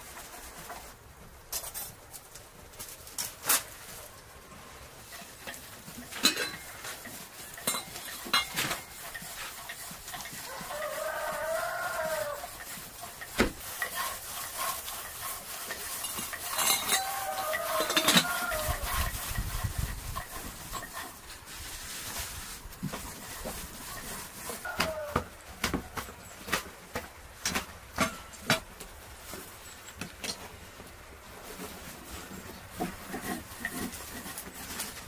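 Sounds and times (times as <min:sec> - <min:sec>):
farm animal cry: 0:10.4 - 0:12.6, 0:16.7 - 0:19.1, 0:24.7 - 0:25.6.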